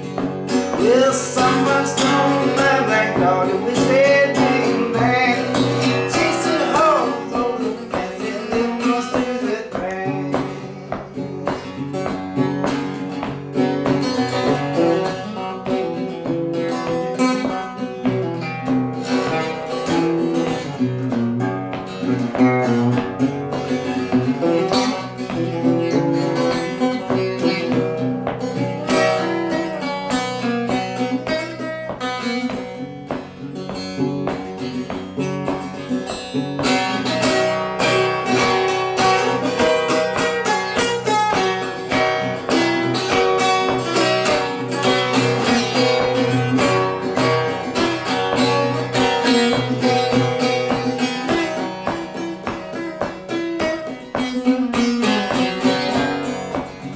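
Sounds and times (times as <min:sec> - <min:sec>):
acoustic guitar picking: 0:00.0 - 0:56.9.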